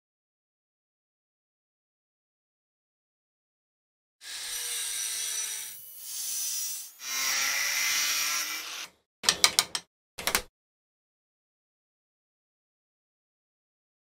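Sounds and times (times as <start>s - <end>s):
angle grinder cutting steel: 4.2s - 9.0s
sharp clicks: 9.2s - 10.5s.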